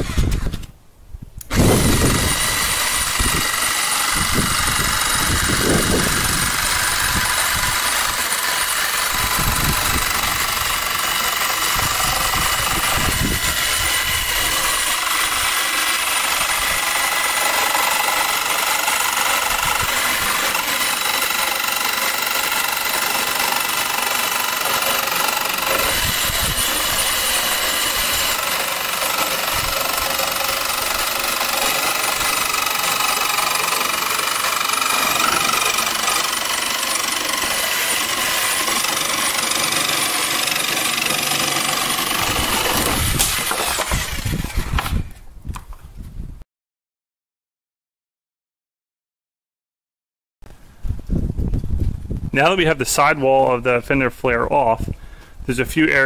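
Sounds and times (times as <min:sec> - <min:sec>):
jigsaw sawing through plastic: 0:01.5 - 0:45.1.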